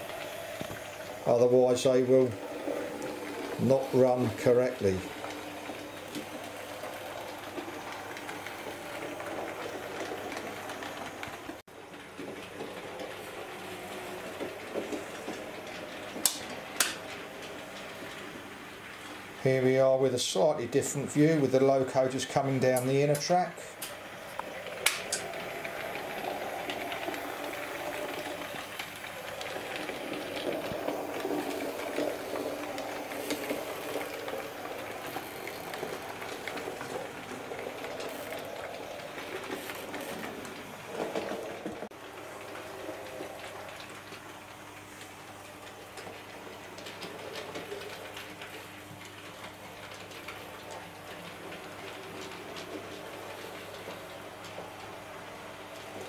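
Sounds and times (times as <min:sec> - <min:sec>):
model train wheels rattling on rails: 0:00.0 - 0:56.0.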